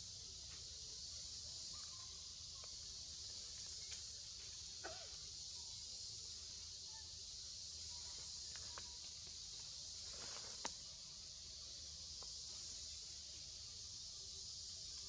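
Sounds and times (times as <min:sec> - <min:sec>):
high insect hum: 0:00.0 - 0:15.0.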